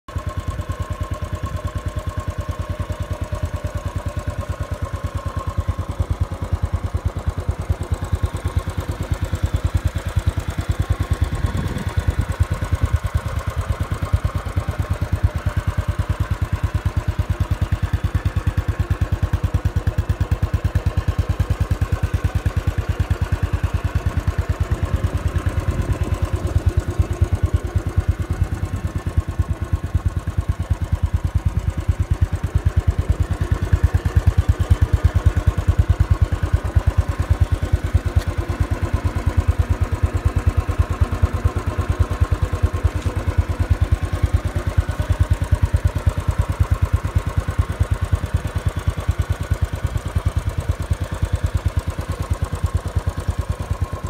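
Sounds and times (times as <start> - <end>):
motorcycle engine idling: 0.0 - 54.0.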